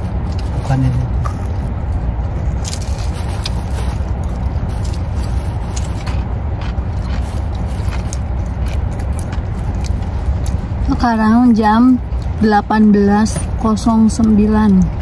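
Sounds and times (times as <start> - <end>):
crunchy chewing: 0.0 - 11.0.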